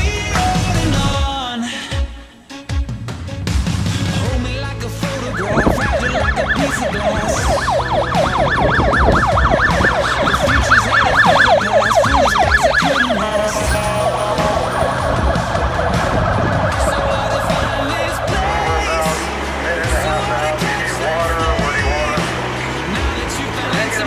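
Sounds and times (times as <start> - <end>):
ambulance siren: 5.1 - 24.0.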